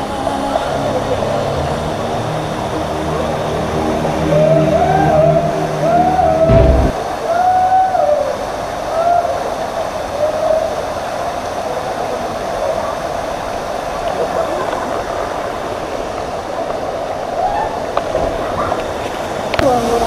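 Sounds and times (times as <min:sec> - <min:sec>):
waterfall rushing: 0:00.2 - 0:17.9
stream running over rocks: 0:08.4 - 0:20.0.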